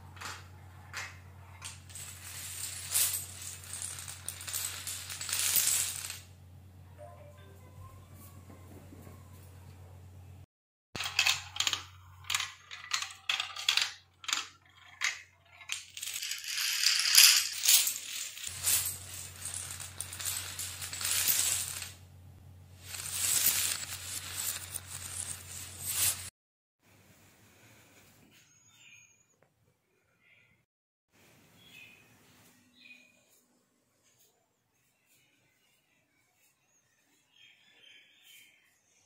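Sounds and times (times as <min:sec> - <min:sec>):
dominoes clattering: 0:01.6 - 0:06.3, 0:11.0 - 0:22.0, 0:22.8 - 0:26.3.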